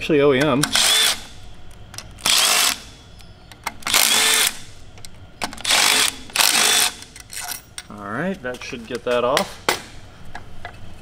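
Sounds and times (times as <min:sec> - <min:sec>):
cordless driver spinning bolts: 0:00.7 - 0:01.4.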